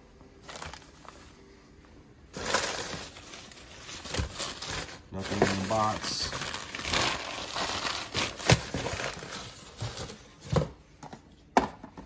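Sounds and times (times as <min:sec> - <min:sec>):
packing paper rustling: 0:00.4 - 0:01.4, 0:02.3 - 0:10.6.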